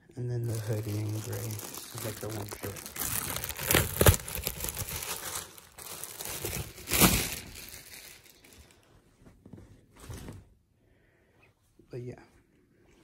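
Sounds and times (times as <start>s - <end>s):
plastic bag crinkling: 0.4s - 8.8s.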